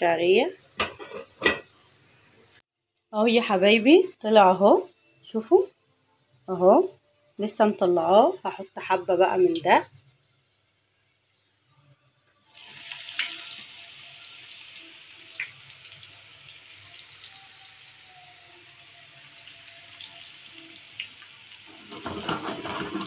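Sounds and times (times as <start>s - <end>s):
onions sizzling in hot oil: 12.4s - 23.0s.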